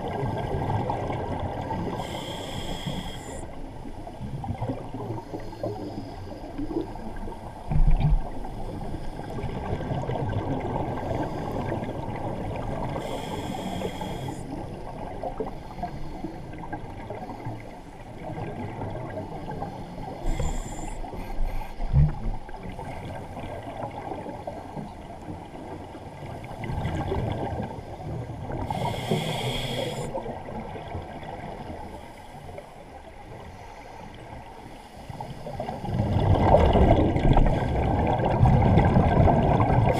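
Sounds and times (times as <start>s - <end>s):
muffled underwater noise: 11.0s - 16.4s, 18.5s - 22.4s, 27.9s - 30.6s
scuba bubbles rushing: 35.8s - 39.9s.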